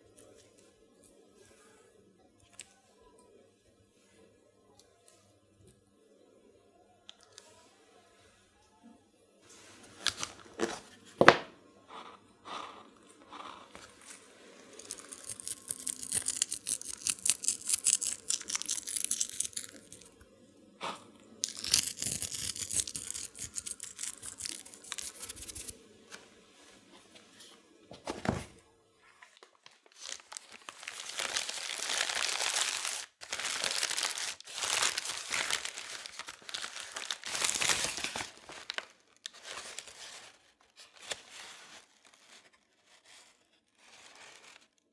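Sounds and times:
paper bag crinkling: 12.5 - 20.1, 21.4 - 25.7, 29.2 - 43.2.

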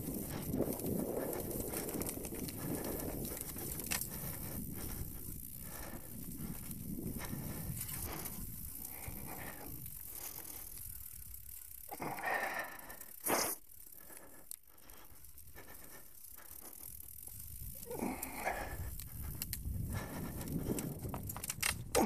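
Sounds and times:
bike rattling over bumps: 0.0 - 22.0
bike tyre noise on dirt: 0.0 - 22.0.

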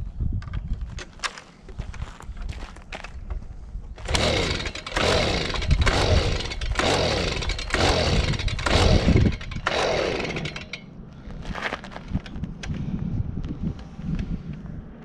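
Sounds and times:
leaf blower recoil starter pulls: 4.0 - 10.9.

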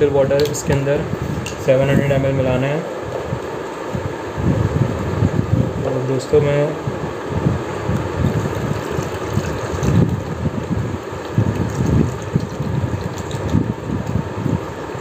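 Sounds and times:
low gurgling: 6.9 - 15.0
water pouring into a container: 8.3 - 10.4, 11.2 - 13.6.

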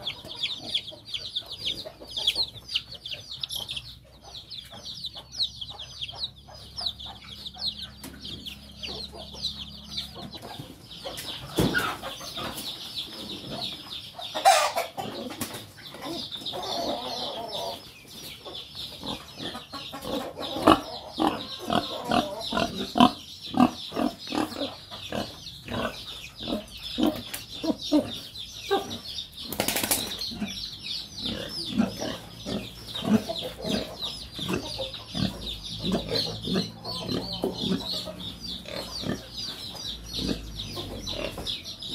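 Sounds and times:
chicks peeping: 0.0 - 41.9
pig grunting and snuffling: 19.0 - 29.1, 30.2 - 41.9.

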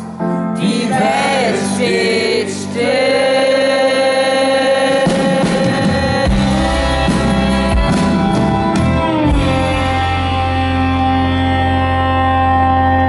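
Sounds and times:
acoustic guitar strumming: 0.6 - 13.0
deep beats: 4.8 - 13.0
sustained low bass: 5.1 - 13.0.

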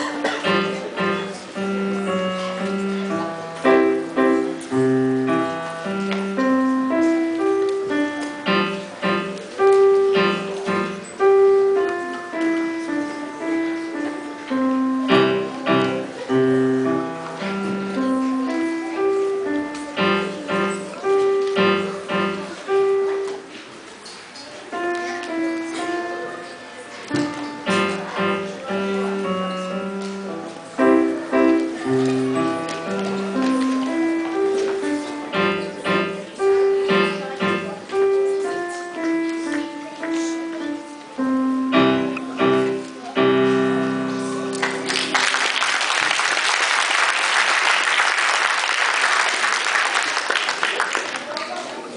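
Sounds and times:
piano waltz: 0.0 - 46.0
audience applause: 44.5 - 51.9.

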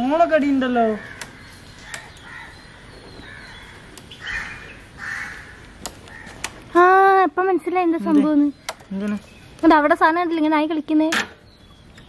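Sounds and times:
crows cawing: 0.7 - 6.8
sharp clicks: 8.6 - 9.2.

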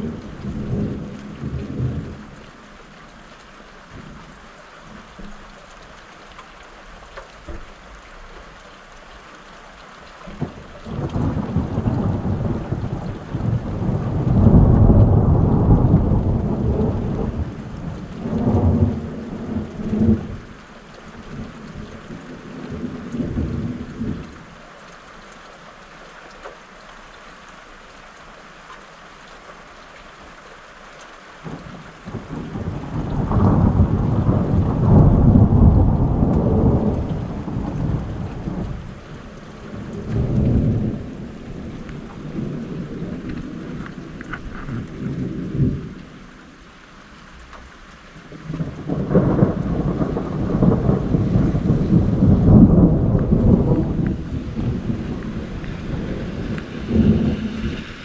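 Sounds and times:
steady rain: 0.0 - 58.0
rolling thunder: 10.3 - 20.5, 31.5 - 46.1, 48.2 - 58.0.

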